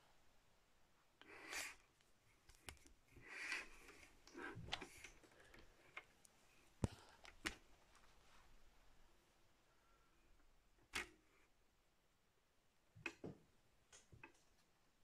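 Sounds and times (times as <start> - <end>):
soft rustles: 1.9 - 9.0.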